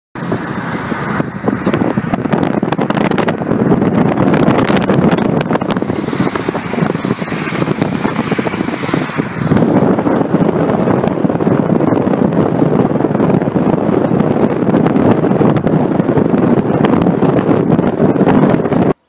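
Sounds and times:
car road noise: 0.2 - 19.0
wind buffeting microphone: 0.2 - 19.0
electric train passing: 4.9 - 10.6.

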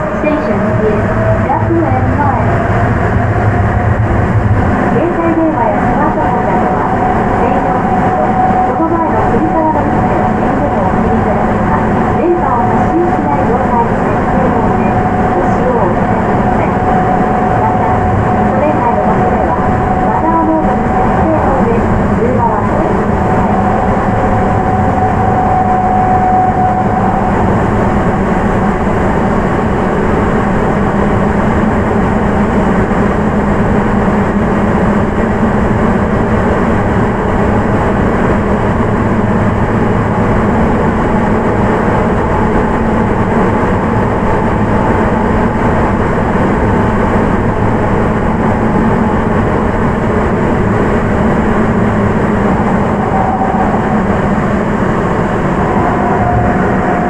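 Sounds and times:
train rumbling in tunnel: 0.0 - 57.0
thin motor whine: 2.3 - 30.7.

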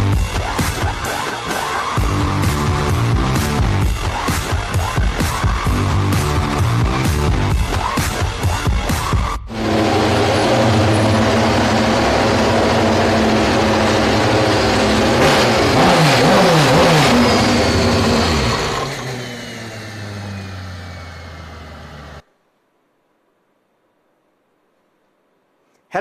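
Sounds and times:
race car engine high revs: 9.5 - 22.2.

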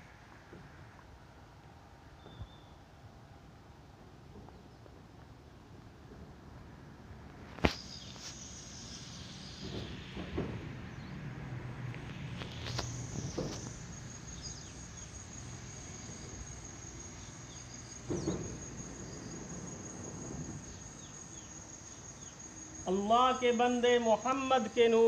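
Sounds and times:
insects trilling: 6.3 - 25.0
faint chirps: 7.6 - 10.2, 12.4 - 24.9.

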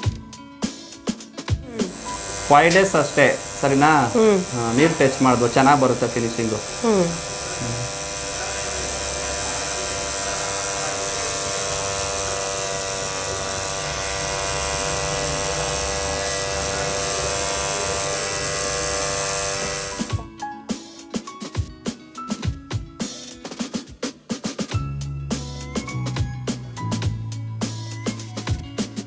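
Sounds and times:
percussive music: 0.0 - 8.3
tattoo machine buzzing: 1.7 - 20.3.

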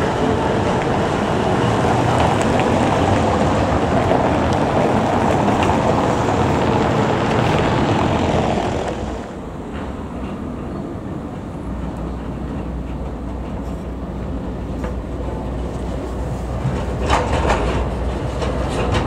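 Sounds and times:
car traffic passing: 0.0 - 9.5
tram rolling on track: 0.0 - 19.0.

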